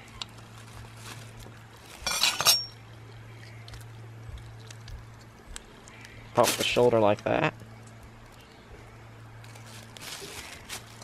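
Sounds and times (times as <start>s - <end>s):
steady low hum: 0.0s - 11.0s
knife clinking on glass: 2.0s - 2.8s.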